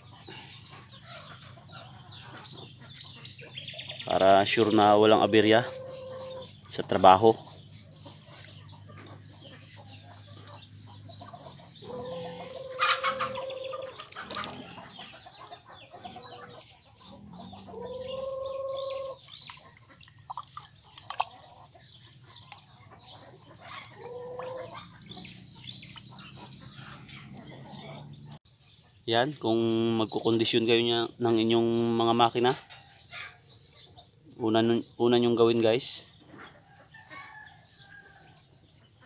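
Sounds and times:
drawn-out chicken calls: 0.0 - 20.1, 20.8 - 28.4, 36.2 - 39.0
chickens clucking: 0.0 - 29.0, 29.8 - 35.5, 36.2 - 37.5.

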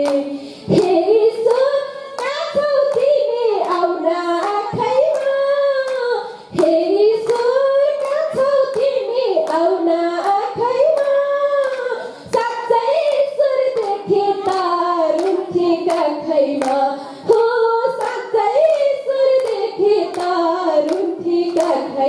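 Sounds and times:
hand clapping: 0.0 - 22.0
woman singing into a microphone: 0.0 - 22.0.

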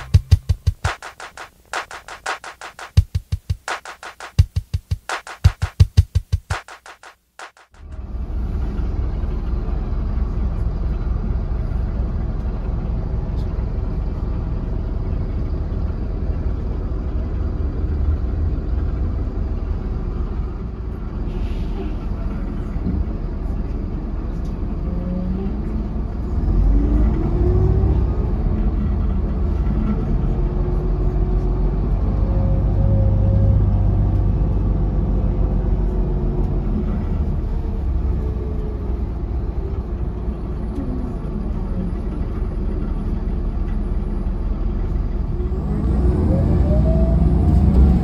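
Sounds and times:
transmission whine: 0.0 - 6.8
bus engine rumble: 7.8 - 48.0.

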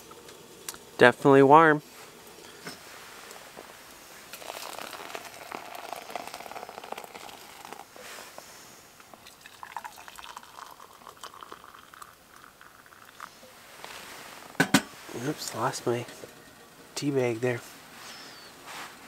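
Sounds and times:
hot water pouring into metal pot: 4.2 - 7.9, 9.1 - 13.4.

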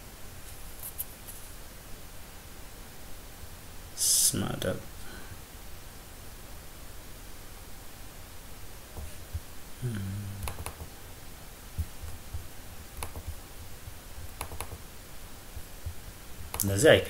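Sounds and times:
person humming briefly: 9.8 - 10.5
computer mouse clicking: 10.4 - 10.9, 13.0 - 13.4, 14.2 - 14.8, 15.8 - 16.7.

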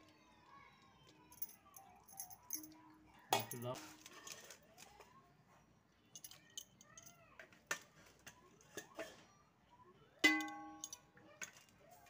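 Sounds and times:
metal spoon knocking on pot: 10.2 - 10.9.

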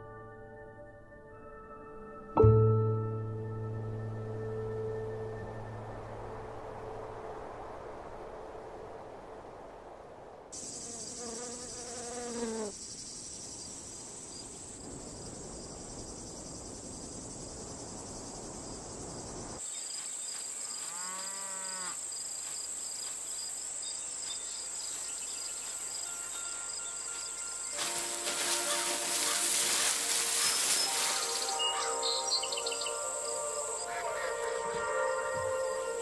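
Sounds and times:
crickets chirring: 10.5 - 36.0
cow mooing: 20.9 - 22.0.

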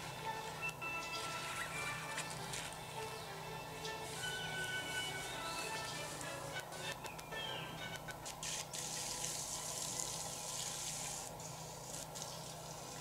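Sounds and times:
low steady hum: 0.0 - 13.0
thin hissy music from tweeter: 0.0 - 13.0.

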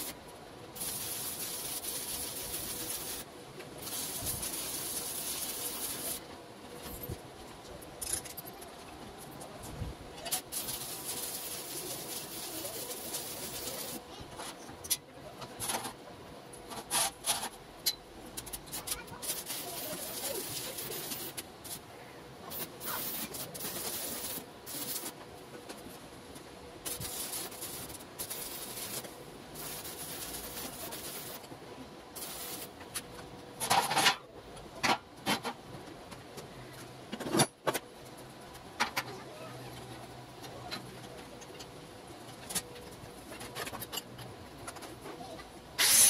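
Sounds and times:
welding arc crackling: 0.8 - 6.2, 10.3 - 14.0, 18.4 - 21.8, 22.5 - 25.2, 26.8 - 31.5, 32.2 - 32.8, 45.8 - 46.0.

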